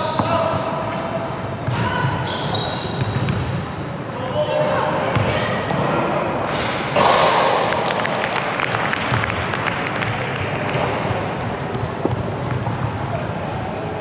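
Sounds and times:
sneaker squeaks on floor: 0:00.0 - 0:07.1, 0:10.4 - 0:14.0.

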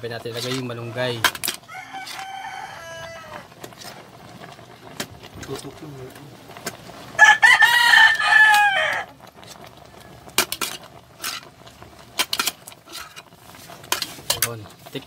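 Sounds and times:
rooster crowing: 0:01.6 - 0:03.6, 0:07.2 - 0:09.1.

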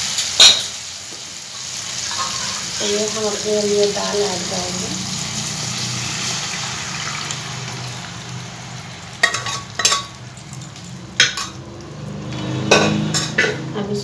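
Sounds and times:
dal sizzling in pan: 0:00.0 - 0:13.7
kitchenware clacking on pan: 0:00.4 - 0:00.7, 0:09.0 - 0:11.6, 0:12.4 - 0:13.7.

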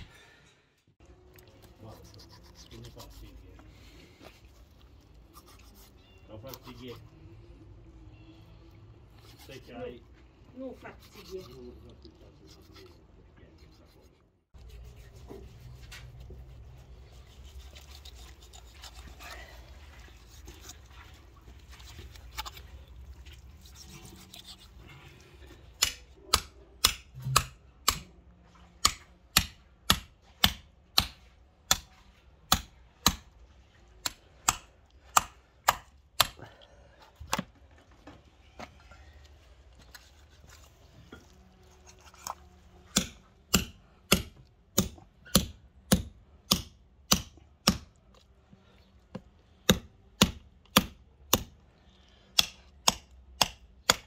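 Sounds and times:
hammer striking knife blade: 0:25.8 - 0:28.1.

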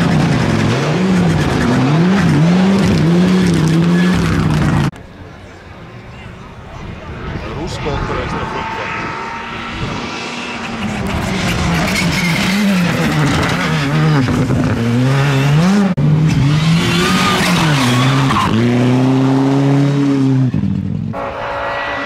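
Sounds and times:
rally car engines revving: 0:00.0 - 0:05.0, 0:06.8 - 0:22.0
engine holding high note: 0:07.0 - 0:11.7.

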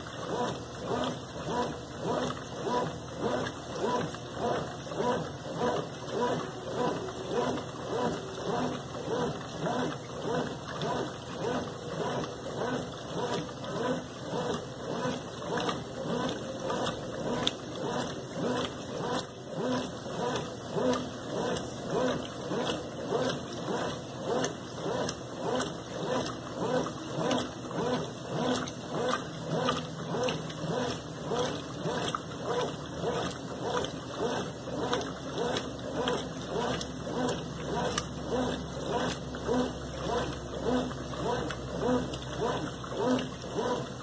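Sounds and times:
washing machine agitating: 0:00.0 - 0:44.0.

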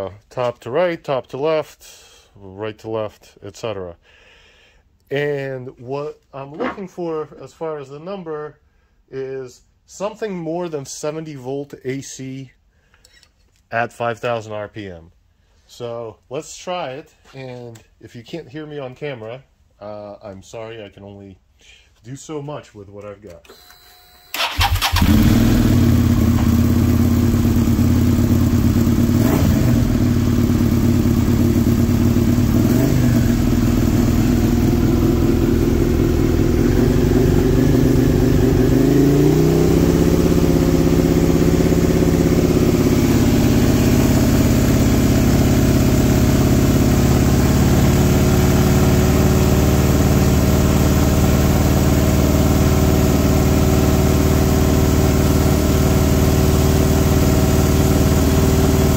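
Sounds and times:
engine throttle blips: 0:24.3 - 0:45.5
motorcycle engine running: 0:24.4 - 0:58.9.

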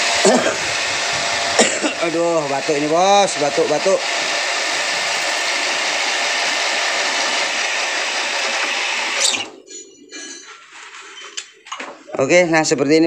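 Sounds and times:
power tool sanding metal: 0:00.0 - 0:10.4.

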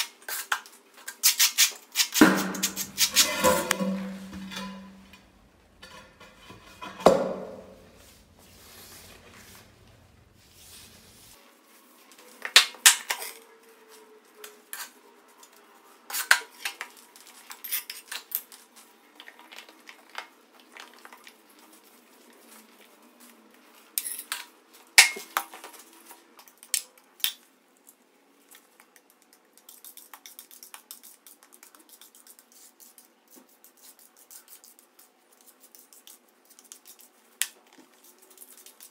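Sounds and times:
putty knife scraping tiles: 0:01.4 - 0:08.0
tools clinking on tile floor: 0:02.3 - 0:07.9, 0:24.0 - 0:24.5.

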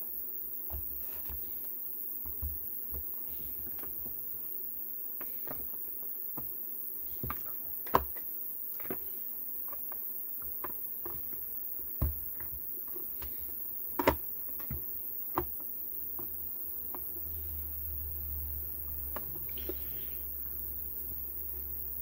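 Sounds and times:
clicks and knocks of handling: 0:07.2 - 0:15.6.

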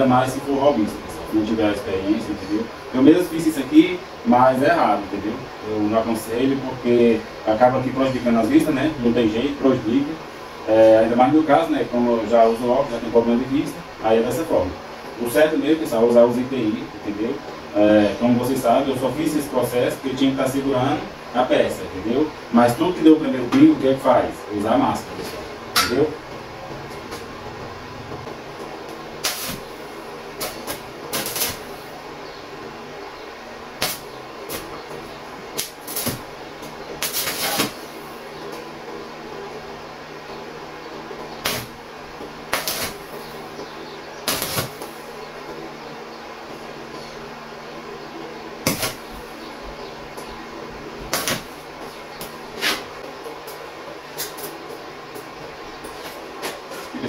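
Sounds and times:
steady low hum: 0:00.0 - 0:57.0
sharp metallic strikes: 0:25.8 - 0:26.2
arc welding bursts: 0:29.1 - 0:32.0, 0:33.7 - 0:34.8, 0:35.5 - 0:36.4, 0:37.0 - 0:38.2, 0:41.4 - 0:41.9, 0:42.5 - 0:43.4, 0:44.2 - 0:45.1, 0:48.6 - 0:49.3, 0:51.1 - 0:51.7.

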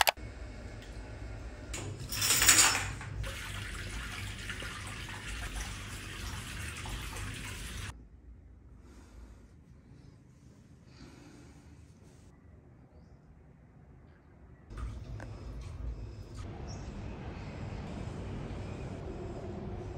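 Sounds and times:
water running into bathtub: 0:03.2 - 0:07.9.

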